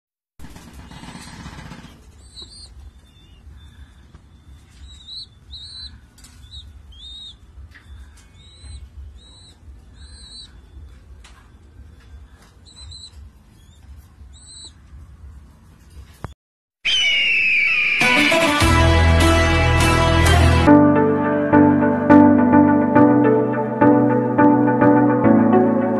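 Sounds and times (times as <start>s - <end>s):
young pigeons squeaking: 0.7s - 15.1s, 16.9s - 18.4s
background music: 18.0s - 25.9s.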